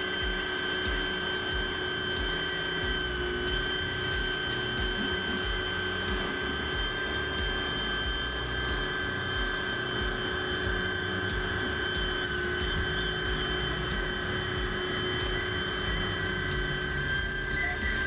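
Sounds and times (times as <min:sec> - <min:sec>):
pressure washer pump whine: 0:00.0 - 0:18.0.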